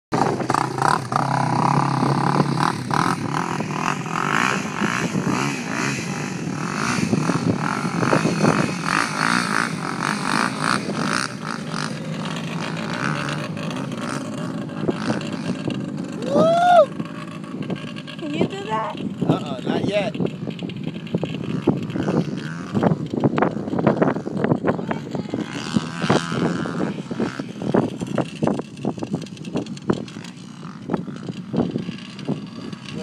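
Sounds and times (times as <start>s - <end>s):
quad bike engine revving: 0.1s - 33.0s.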